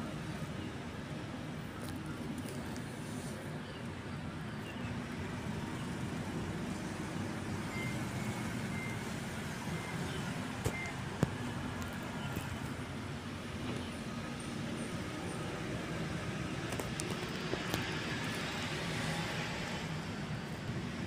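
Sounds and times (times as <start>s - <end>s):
low rumble of road traffic: 0.0s - 21.0s.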